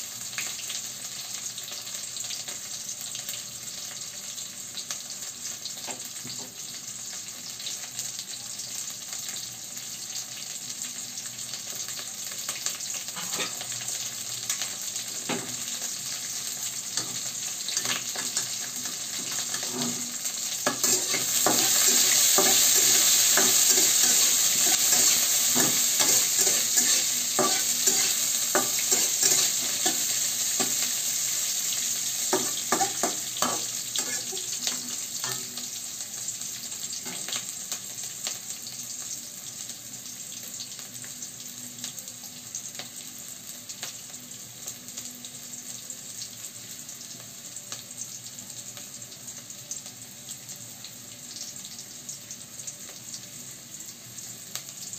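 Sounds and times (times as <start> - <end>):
onion sizzling in hot oil: 0.0 - 54.9
metal spatula scraping pan: 13.2 - 13.6, 19.5 - 20.1, 20.7 - 30.8.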